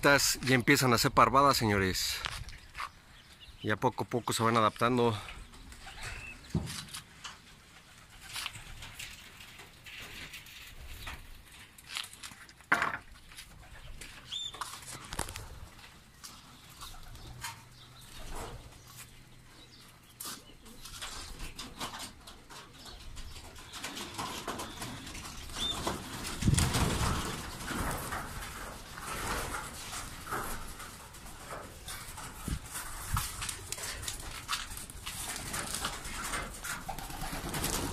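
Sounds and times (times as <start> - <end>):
pigeon wings flapping: 7.7 - 10.9, 21.0 - 37.9.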